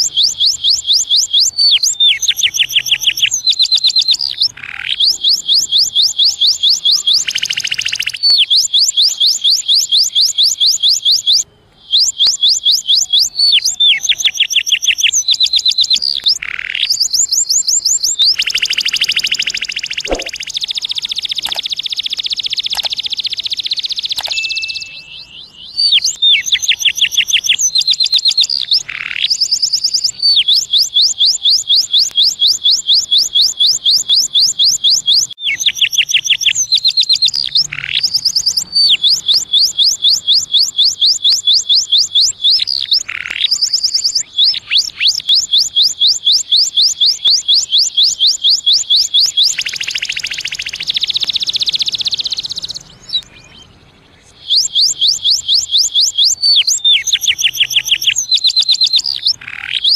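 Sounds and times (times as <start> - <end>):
canary singing trills: 0.0 - 59.9.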